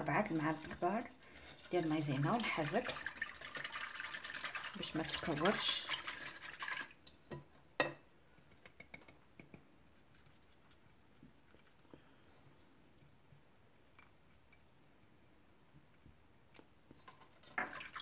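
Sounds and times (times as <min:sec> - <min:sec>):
whisk clicking on ceramic bowl: 0:00.2 - 0:09.6.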